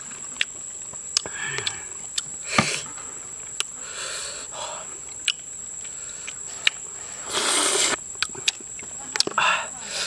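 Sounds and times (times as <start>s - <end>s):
loud slurping suck: 7.3s - 8.0s.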